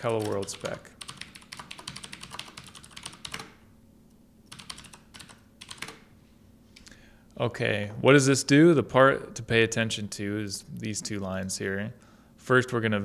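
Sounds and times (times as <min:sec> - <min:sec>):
typing on computer keyboard: 0:00.0 - 0:03.6, 0:04.5 - 0:06.1.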